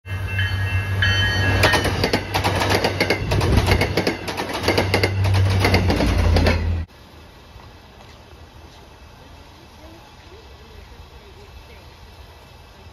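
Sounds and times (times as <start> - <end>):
high ringing wheel squeals: 0.1 - 2.0
train rumble: 0.1 - 12.9
train wheels clacking over rail joints: 1.4 - 6.9.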